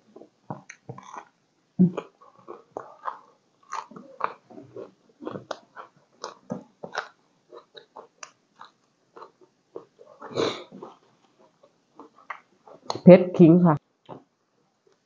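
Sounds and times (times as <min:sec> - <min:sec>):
chewing and crunching: 0:00.1 - 0:13.0.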